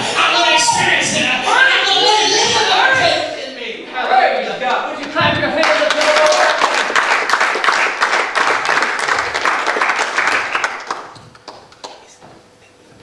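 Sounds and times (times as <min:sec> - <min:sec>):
crowd applauding: 0:05.0 - 0:12.2.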